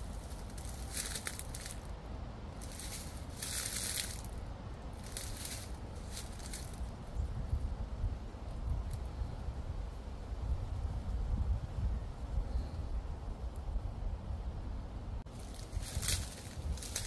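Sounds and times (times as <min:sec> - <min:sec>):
footsteps crunching through dry leaves: 0:00.0 - 0:01.9, 0:02.6 - 0:04.4, 0:05.0 - 0:06.9, 0:15.3 - 0:17.0
low wind rumble: 0:00.0 - 0:17.0.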